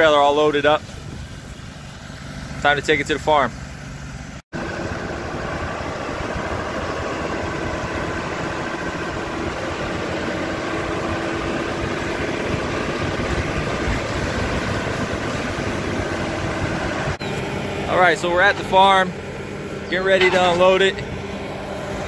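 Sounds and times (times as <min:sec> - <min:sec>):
road noise: 0:00.0 - 0:22.0
truck engine: 0:00.0 - 0:22.0.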